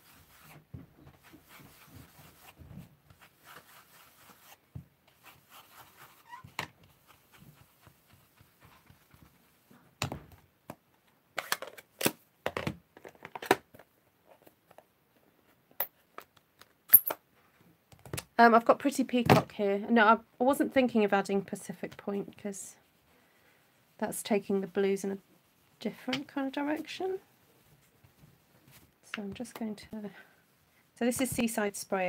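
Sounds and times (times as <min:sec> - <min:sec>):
brush rubbing on cardstock: 0:01.2 - 0:06.3, 0:06.9 - 0:09.6, 0:22.5 - 0:28.9.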